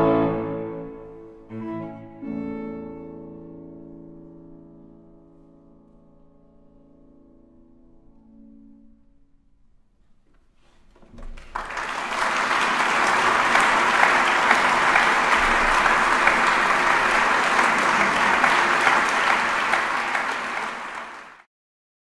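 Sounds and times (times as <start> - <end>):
audience applauding: 11.2 - 21.5.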